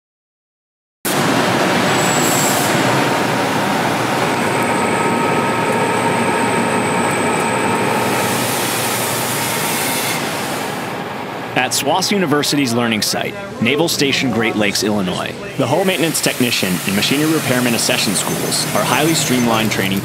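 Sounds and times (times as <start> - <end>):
loud rushing mechanical noise: 1.1 - 20.0.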